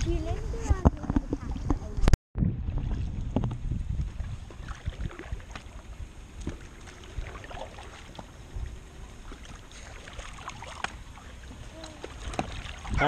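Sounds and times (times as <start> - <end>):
wind rumble on microphone: 0.0 - 13.0
paddles dipping and dripping in water: 2.6 - 13.0.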